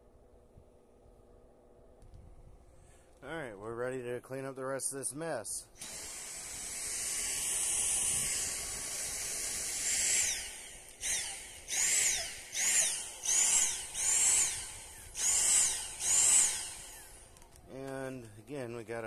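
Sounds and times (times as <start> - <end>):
vacuum cleaner whining and pulsing: 5.8 - 17.5.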